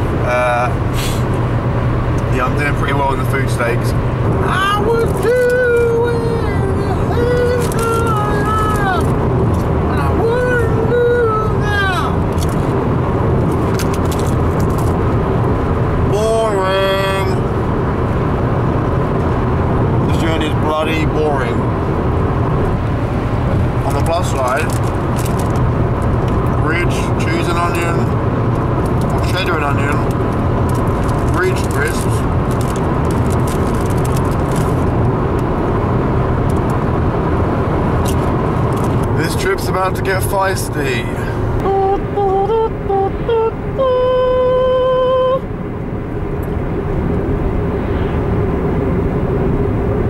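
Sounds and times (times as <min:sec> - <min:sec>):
car road and engine noise: 0:00.0 - 0:50.0
man singing wordless note: 0:41.6 - 0:45.5.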